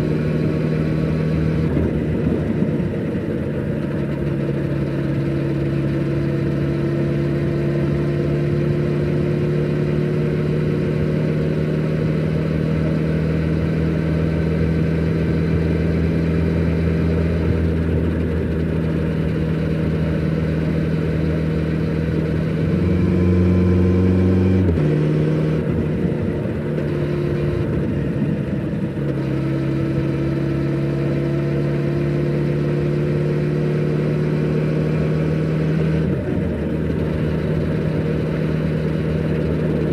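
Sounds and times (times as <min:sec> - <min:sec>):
motorcycle exhaust cruising: 0:00.0 - 0:39.9.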